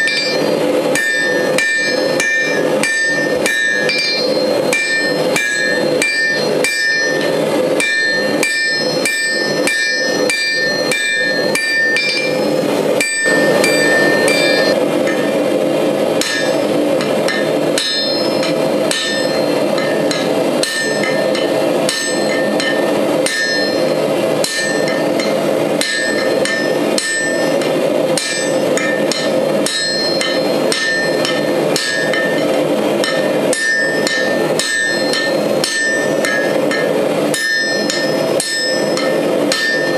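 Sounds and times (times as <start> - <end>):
hammer striking steel on anvil: 0.0 - 15.4, 16.2 - 39.9
steady rushing noise: 13.3 - 17.8.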